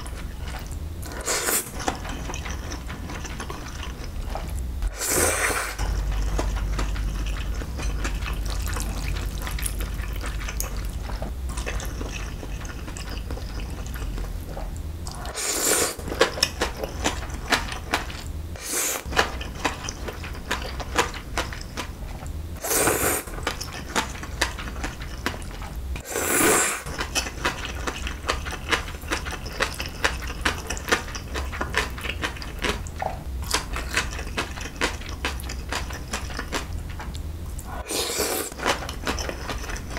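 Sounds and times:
noodle slurping: 4.9 - 5.8, 15.1 - 16.1, 26.0 - 27.0, 37.6 - 38.6.

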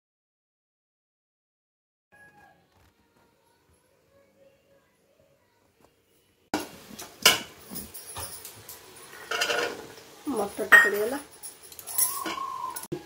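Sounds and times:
ladle scraping metal pot: 9.1 - 9.9.

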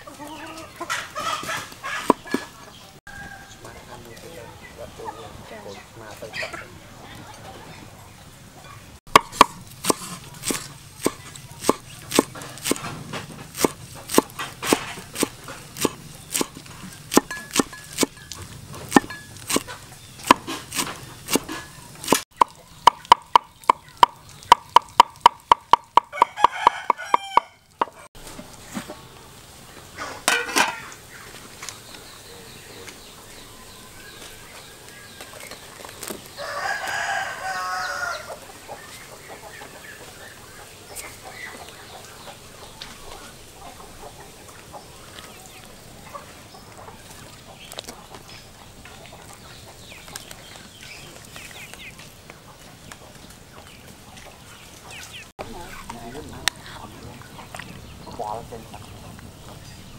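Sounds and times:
chickens clucking: 0.0 - 59.9
rooster crowing: 3.1 - 3.8, 26.0 - 27.7, 36.4 - 38.4
cleaver chopping on wooden block: 9.1 - 12.9, 13.5 - 18.2, 18.9 - 28.0.

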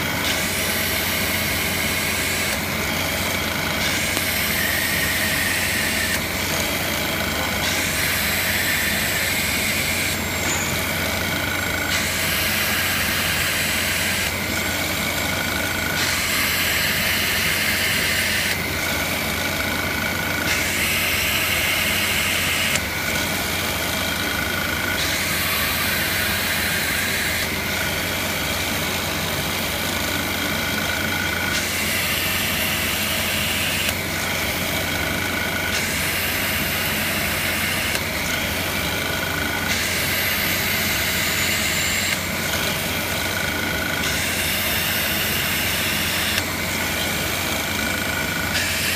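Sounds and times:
drill press motor running: 0.0 - 48.9
drill bit grinding through glass: 0.2 - 18.6.

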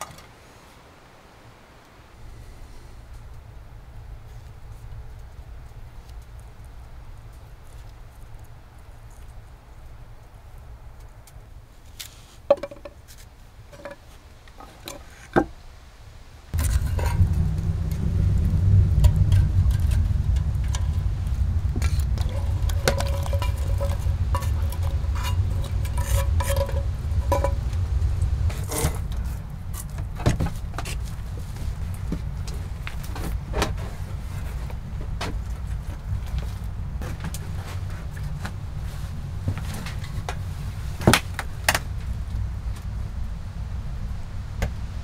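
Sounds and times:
steady low rumble: 2.1 - 11.8, 16.3 - 45.0
mushrooms crackling in pot: 16.5 - 33.4.

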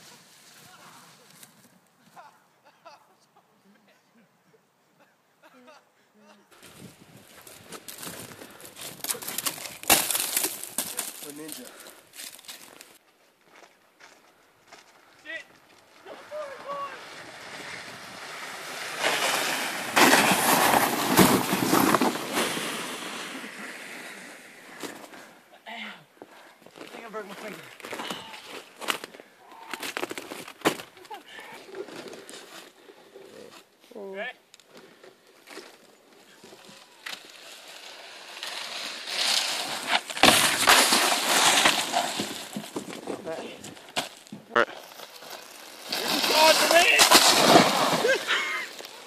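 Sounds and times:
canoe scraping over snow: 15.8 - 25.4, 36.1 - 43.9, 44.7 - 49.0
snowboard hissing across snow: 16.2 - 24.8.

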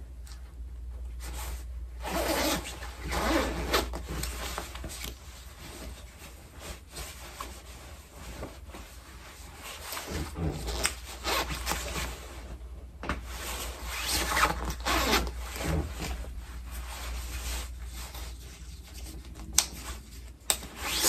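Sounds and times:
fabric swishing rustles: 1.2 - 21.0
jacket zipper pulled: 2.0 - 4.0, 13.9 - 16.2.

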